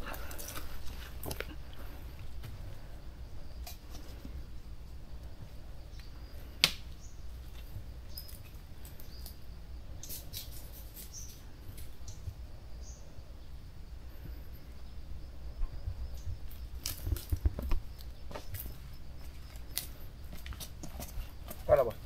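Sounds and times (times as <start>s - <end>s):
bamboo stems crackling and snapping: 0.0s - 1.8s, 6.0s - 9.4s, 16.5s - 20.8s
faint bird chirps: 5.8s - 7.4s, 10.8s - 13.6s.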